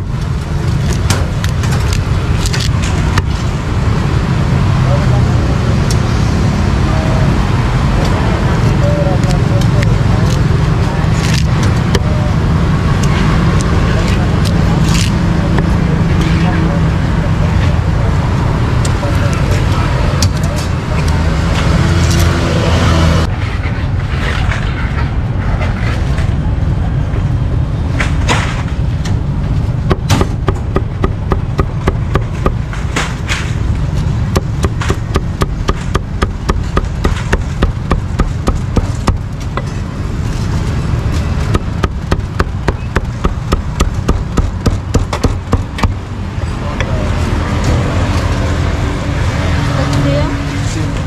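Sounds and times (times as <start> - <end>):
traffic rumble: 0.0 - 51.0
cleaver chopping meat on a block: 29.9 - 32.6, 34.3 - 39.3, 41.5 - 46.0.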